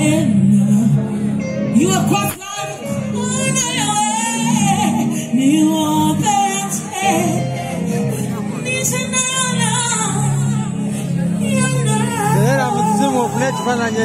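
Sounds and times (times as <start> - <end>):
amplified band music: 0.0 - 14.0
woman singing into microphone: 0.0 - 14.0.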